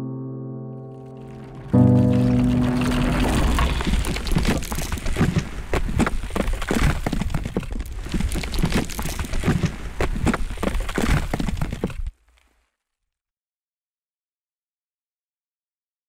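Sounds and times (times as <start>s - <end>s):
fire crackling and popping: 1.0s - 12.7s.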